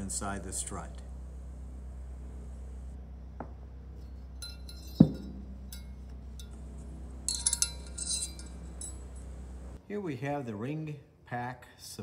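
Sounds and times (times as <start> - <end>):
steady low hum: 0.0 - 10.0
metal rings clinking: 3.9 - 9.8
sharp metal knock: 4.5 - 5.6.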